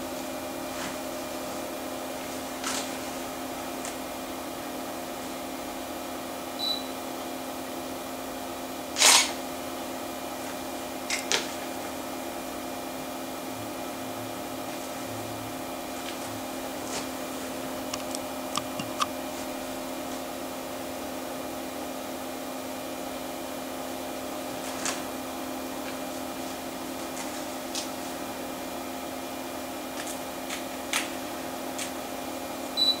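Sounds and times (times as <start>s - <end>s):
computer humming: 13.3s - 19.8s
hard drive clicks: 17.9s - 19.2s.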